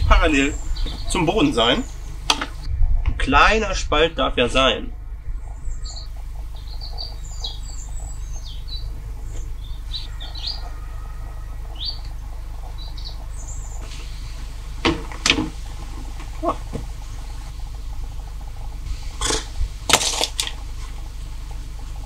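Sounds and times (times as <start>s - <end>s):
small birds chirping: 0.0s - 2.8s, 4.8s - 14.8s, 15.6s - 19.2s
low background hum: 0.0s - 22.0s.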